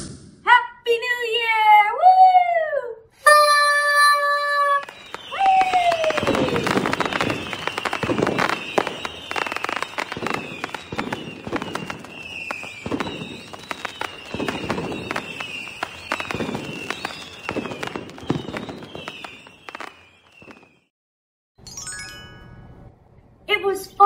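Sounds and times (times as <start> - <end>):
fireworks bangs and crackles: 4.7 - 20.9
falling firework whistles: 4.8 - 20.9.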